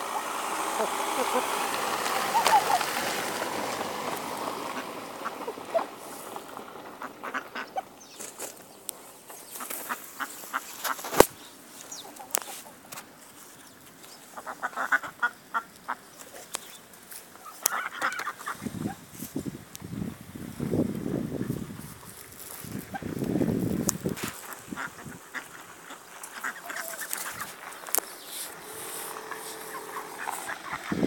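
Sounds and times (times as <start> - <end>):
chickens clucking: 0.0 - 8.4, 13.8 - 19.0, 24.0 - 31.0.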